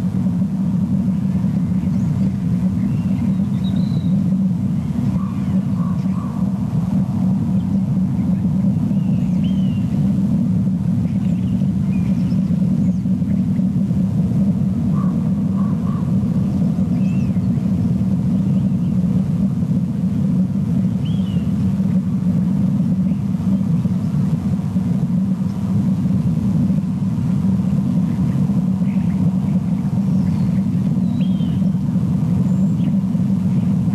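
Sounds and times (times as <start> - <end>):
low rumble: 0.0 - 33.9
faint bird chirps: 1.2 - 6.5, 7.5 - 10.1, 11.0 - 13.7, 14.9 - 19.1, 20.9 - 21.6, 28.0 - 31.7.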